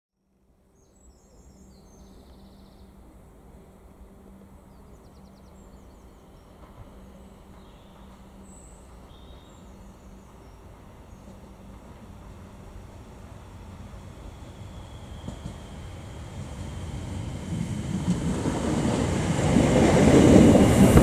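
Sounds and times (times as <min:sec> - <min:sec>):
small birds chirping: 0:04.7 - 0:11.5.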